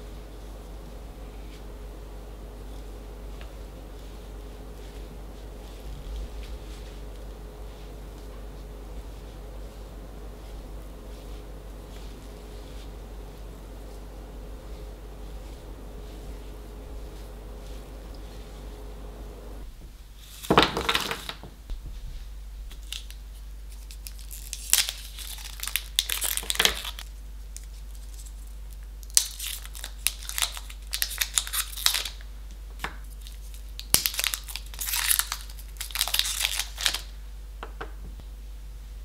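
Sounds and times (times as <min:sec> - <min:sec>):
foil wrappers crinkling: 0:02.7 - 0:19.3, 0:22.7 - 0:37.2.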